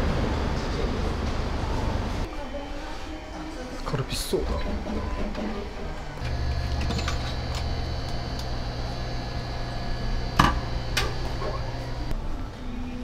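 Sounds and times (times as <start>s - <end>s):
electrical hum: 4.6s - 12.2s.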